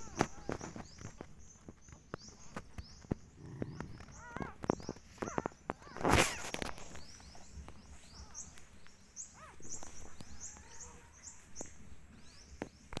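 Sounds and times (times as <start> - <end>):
small bird chirping: 0.0 - 13.0.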